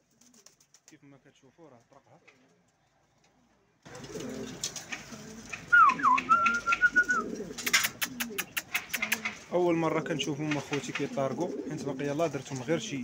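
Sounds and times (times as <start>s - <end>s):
pigeons cooing: 3.2s - 13.0s
hands clapping: 4.9s - 9.4s.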